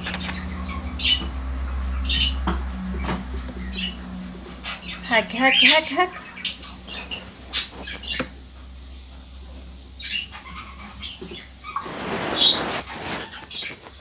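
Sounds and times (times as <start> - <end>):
hamster chirping: 0.0 - 2.5, 3.6 - 8.4, 9.9 - 13.8
rustling in wood shavings: 6.9 - 14.0.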